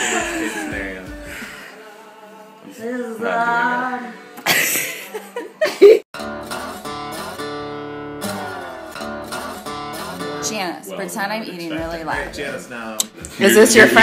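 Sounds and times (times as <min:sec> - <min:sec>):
strummed acoustic guitar music: 0:06.2 - 0:14.0
people talking: 0:10.4 - 0:14.0.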